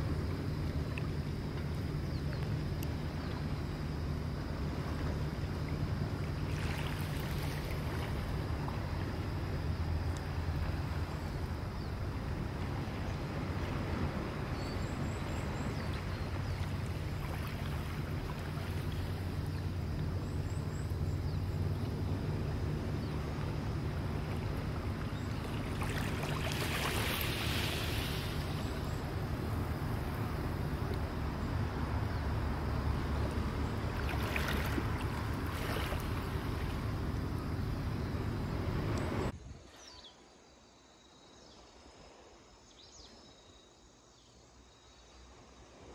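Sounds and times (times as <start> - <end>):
waves lapping on pebbles: 6.0 - 9.8, 16.0 - 19.4, 24.0 - 30.2, 33.7 - 37.3
wave hissing up shingle: 26.0 - 30.8.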